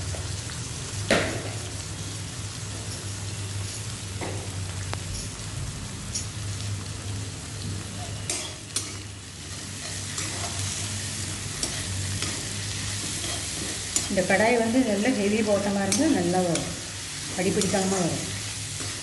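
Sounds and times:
onion sizzling in oil: 0.0s - 19.0s
metal spoon clicking on pan: 8.3s - 9.0s.

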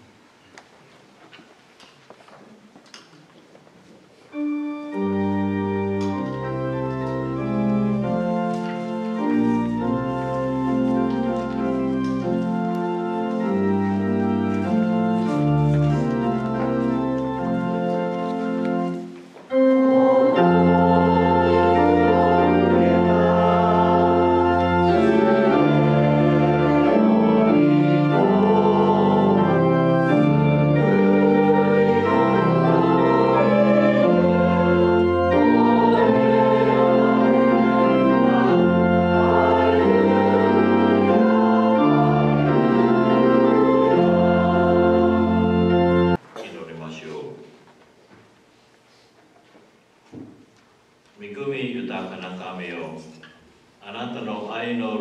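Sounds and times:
organ playing a hymn: 4.2s - 46.2s.

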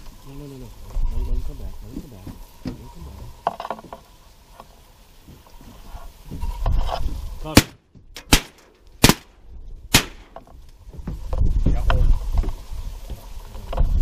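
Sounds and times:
shotgun shots: 7.5s - 10.4s.

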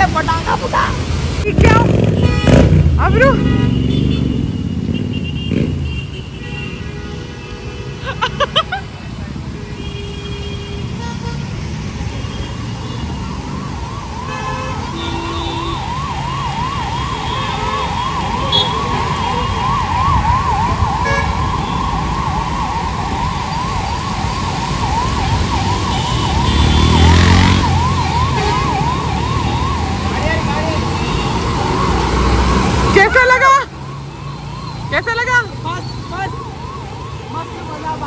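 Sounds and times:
heavy rain on wet road: 0.0s - 34.9s
passing traffic: 0.0s - 38.0s
car horn toots: 2.1s - 7.6s
emergency siren yelping: 12.8s - 38.0s.

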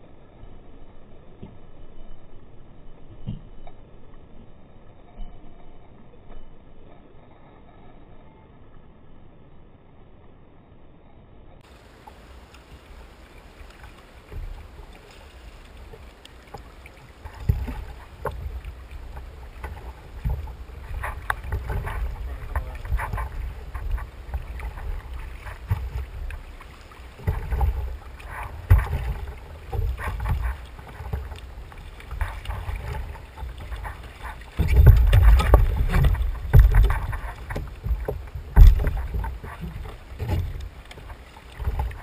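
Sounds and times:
small splashes: 11.6s - 42.0s
water lapping against plastic hull: 11.6s - 42.0s.

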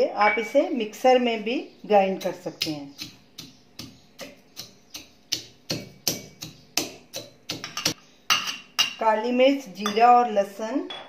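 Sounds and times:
steel pestle pounding in bowl: 2.6s - 9.0s.

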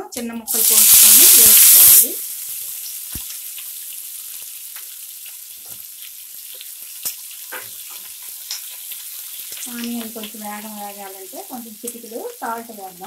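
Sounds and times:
onions sizzling in hot oil: 0.4s - 13.0s
spatula scraping and tapping pan: 4.8s - 10.4s.

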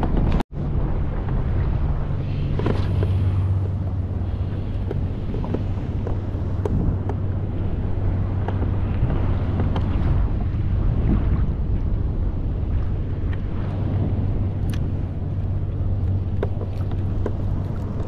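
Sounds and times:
wind buffeting microphone: 0.0s - 18.0s
water splashing: 1.0s - 18.0s.

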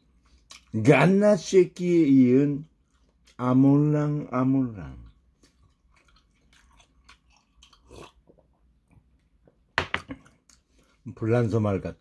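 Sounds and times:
person chewing: 0.0s - 0.8s, 2.6s - 3.4s, 5.0s - 9.4s.

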